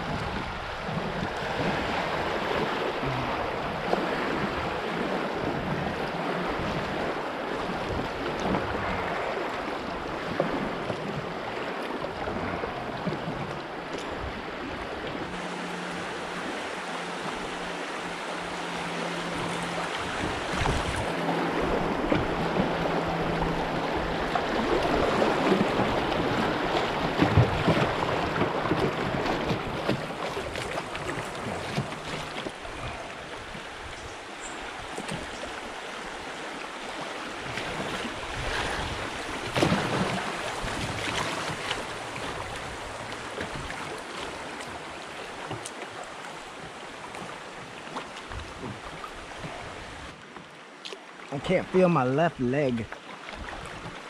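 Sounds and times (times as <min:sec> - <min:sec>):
river water rushing over rapids: 0:13.6 - 0:54.0.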